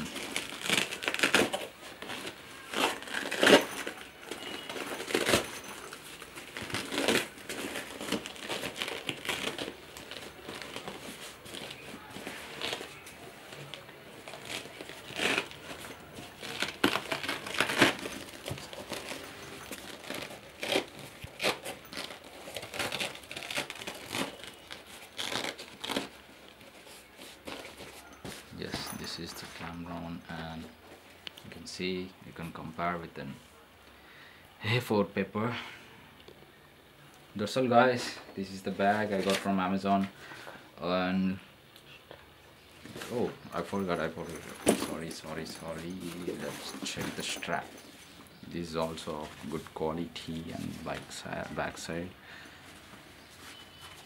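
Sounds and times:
backpack fabric rustling and scraping: 0.0s - 30.0s, 42.6s - 54.0s.

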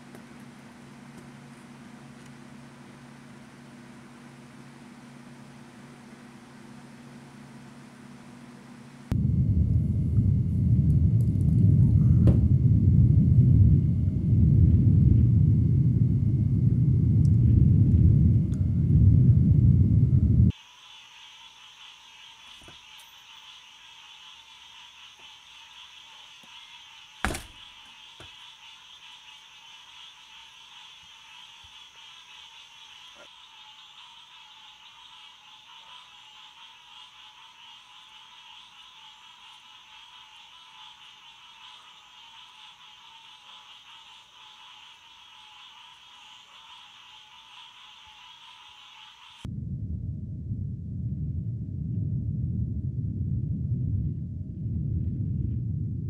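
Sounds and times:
loud low rumble: 9.1s - 20.5s, 49.5s - 56.0s
night animals trilling chorus: 20.8s - 49.5s.

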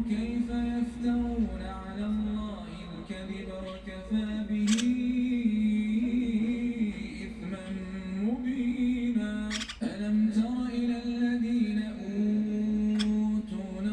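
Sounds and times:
sharp click: 4.7s - 5.0s, 9.5s - 9.8s, 13.0s - 13.2s.

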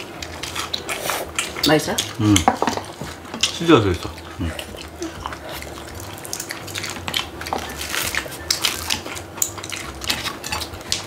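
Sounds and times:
utensils tapping on dishes: 1.6s - 3.8s, 6.3s - 11.0s.

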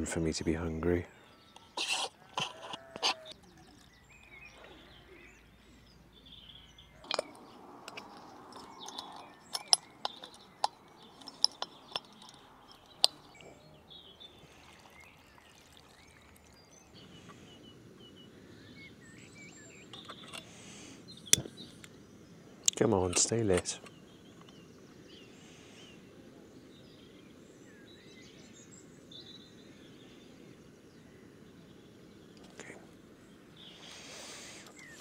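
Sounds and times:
faint birdsong: 0.0s - 35.0s
camp cooking gear clicking: 7.0s - 13.6s, 22.6s - 24.7s.

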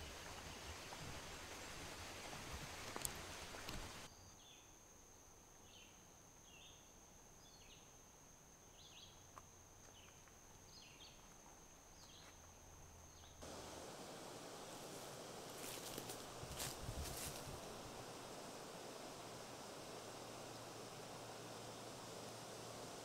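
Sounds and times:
high-pitched whine: 13.4s - 23.0s.

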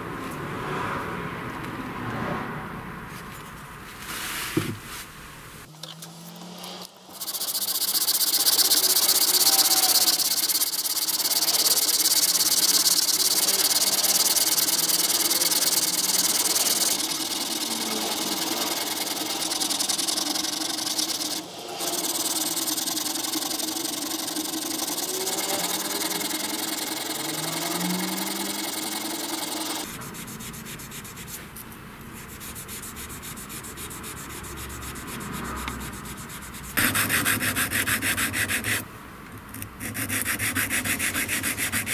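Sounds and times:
sandpaper rasping on metal: 7.1s - 31.5s, 32.1s - 38.8s, 39.8s - 41.9s.

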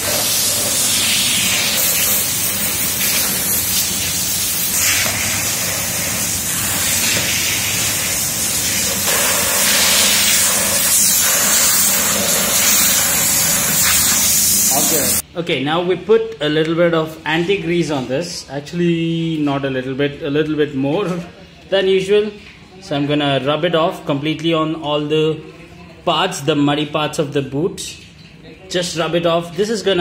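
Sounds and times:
pressure washer water jet hissing: 0.0s - 15.2s.

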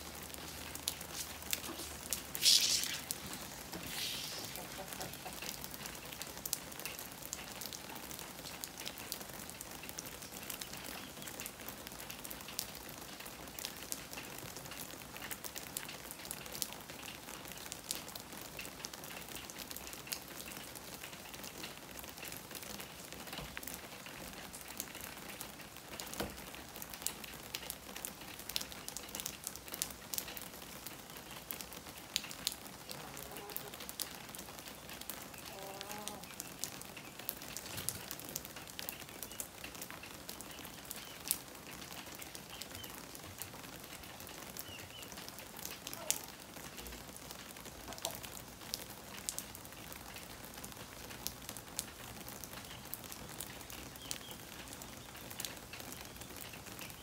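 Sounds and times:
raindrops ticking: 0.0s - 57.0s
steady rain hiss: 0.0s - 57.0s.

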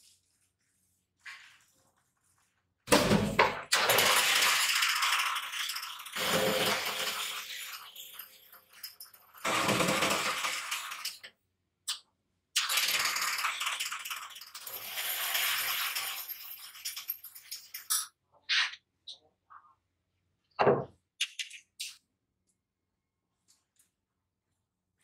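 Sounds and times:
coil winding machine rattling: 3.8s - 11.2s, 12.6s - 17.9s.

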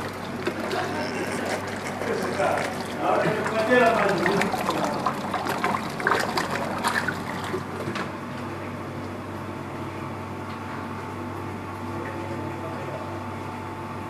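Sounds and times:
liquid sloshing and splashing: 0.0s - 8.2s
steady machine hum: 0.0s - 14.0s.

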